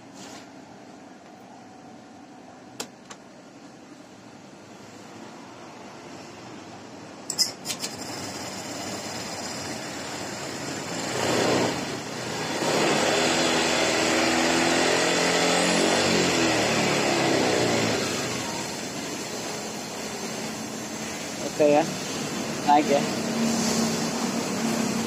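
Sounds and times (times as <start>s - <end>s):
scooter engine revving: 7.9s - 19.4s.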